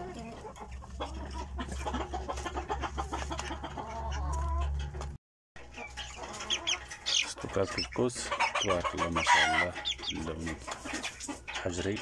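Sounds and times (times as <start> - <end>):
chicks clucking and cheeping: 0.0 - 12.0
beaks tapping wooden trough: 5.8 - 12.0.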